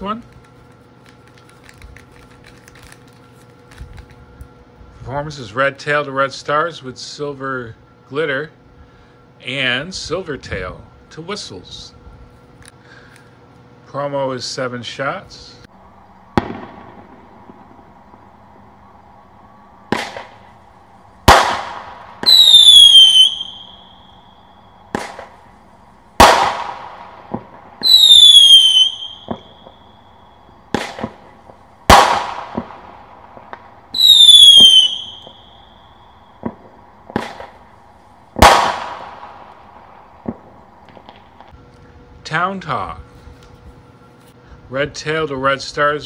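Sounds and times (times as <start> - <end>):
whistling firework shots: 15.8 - 37.8, 38.4 - 41.6
firework loud bang: 16.4 - 17.8, 21.2 - 23.6, 26.2 - 29.8, 31.9 - 35.4, 38.4 - 39.5.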